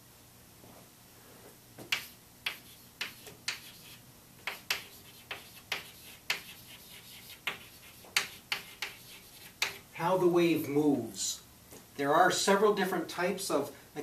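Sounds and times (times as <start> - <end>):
chalk tapping and scraping on board: 1.8 - 9.8.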